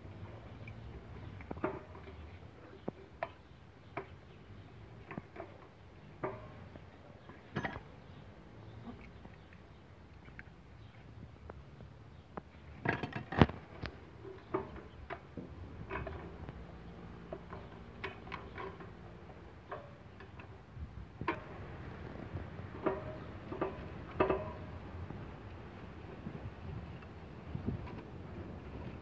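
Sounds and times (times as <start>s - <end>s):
clicks and knocks of hand tools: 17.2s - 20.6s, 22.7s - 24.8s.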